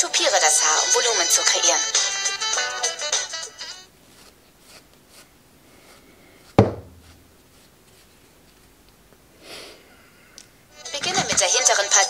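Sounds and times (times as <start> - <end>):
hair brushing: 4.0 - 8.7
sharp knock with low ring: 6.6 - 7.0.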